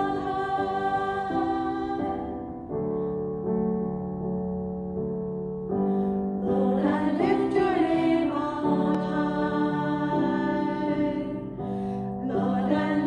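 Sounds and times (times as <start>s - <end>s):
women singing: 0.0s - 2.5s, 6.4s - 13.0s
keyboard piano chords: 0.0s - 13.0s.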